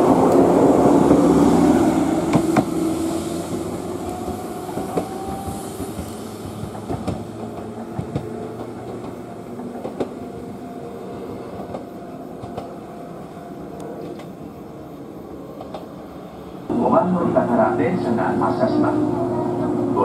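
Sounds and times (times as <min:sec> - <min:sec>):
electric train pulling away: 0:00.0 - 0:20.0
wheels clacking over rail joints: 0:03.5 - 0:10.6.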